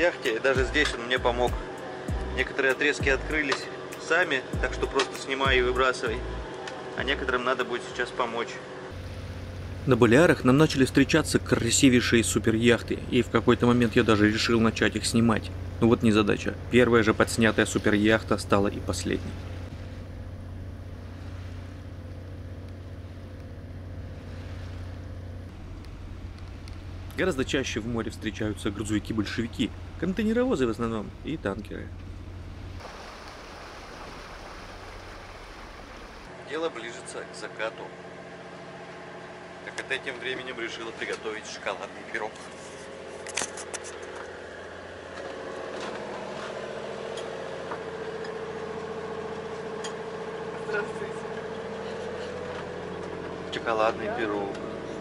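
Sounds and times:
diesel engine droning: 0:00.0 - 0:55.0
wind: 0:00.0 - 0:55.0
water hissing: 0:32.7 - 0:36.3.

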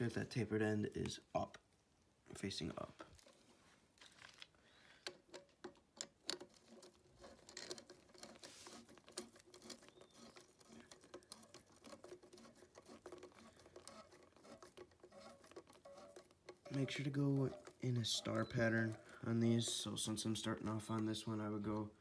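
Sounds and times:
socket wrench clicking and scraping: 0:05.0 - 0:22.0.

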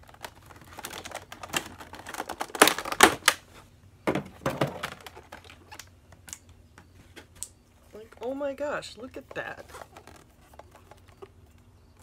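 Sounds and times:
plastic packaging clicks and rustles: 0:00.0 - 0:03.5, 0:04.4 - 0:06.4, 0:09.2 - 0:12.0.

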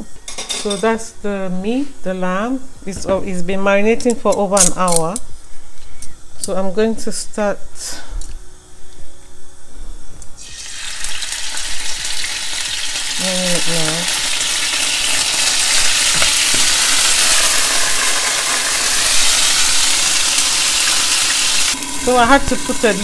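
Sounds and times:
meat sizzling in hot oil: 0:10.4 - 0:23.0.

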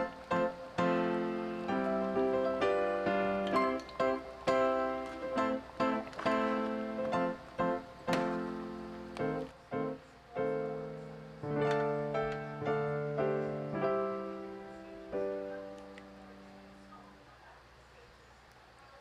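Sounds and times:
slow piano chords: 0:00.0 - 0:17.4.

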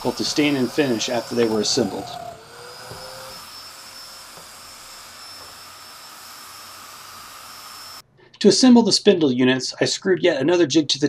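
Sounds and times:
power tool motor running: 0:00.0 - 0:08.0.

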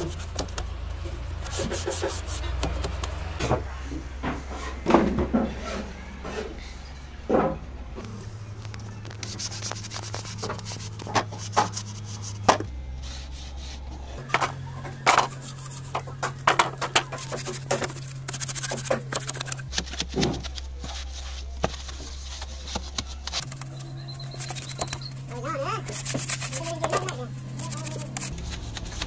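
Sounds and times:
sponge rubbing and scraping wood: 0:01.4 - 0:03.0, 0:09.1 - 0:29.0.

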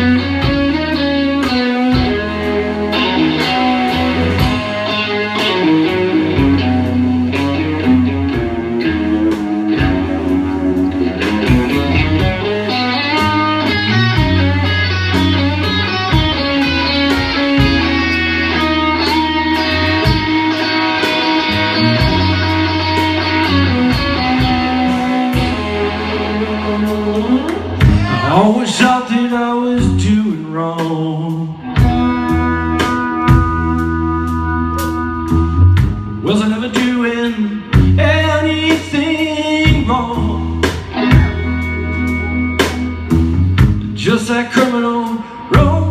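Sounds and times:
distorted electric guitars: 0:00.0 - 0:45.9.

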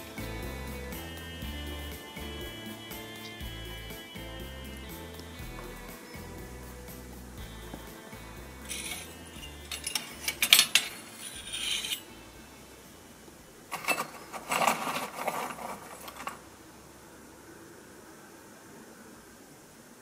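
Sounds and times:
coal shovel clinking and scraping: 0:08.6 - 0:12.3, 0:13.7 - 0:16.5.

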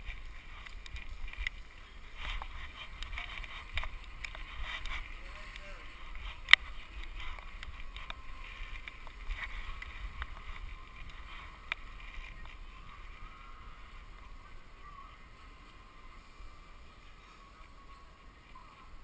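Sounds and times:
camera rustling and rubbing: 0:00.0 - 0:13.2.

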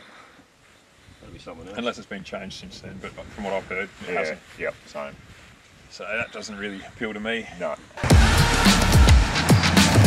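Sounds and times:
deep kick drums: 0:08.0 - 0:10.0
electronic music with fast beat: 0:08.0 - 0:10.0
sharp high percussion: 0:08.0 - 0:10.0.

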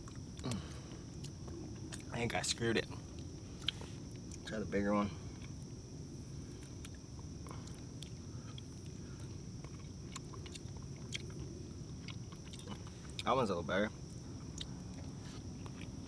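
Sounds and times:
person chewing food: 0:00.0 - 0:02.1, 0:03.0 - 0:04.5, 0:06.5 - 0:13.3, 0:14.0 - 0:16.0.

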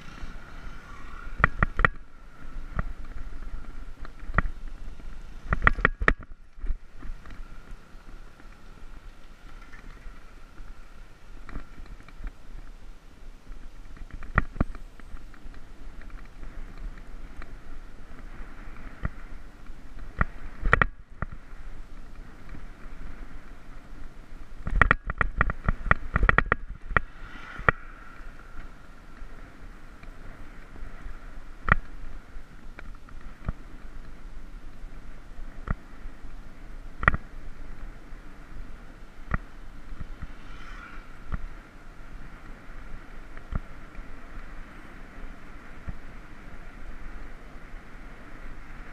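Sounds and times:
bicycle knocks and rattles: 0:00.0 - 0:12.7, 0:13.4 - 0:23.5, 0:24.4 - 0:37.8
wind and tyre noise: 0:00.0 - 0:48.9.

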